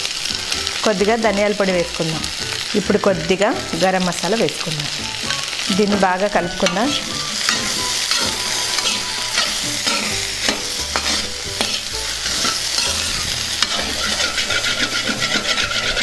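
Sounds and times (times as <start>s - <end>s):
vegetables sizzling in oil: 0.0s - 16.0s
metal spatula scraping a pan: 5.8s - 16.0s.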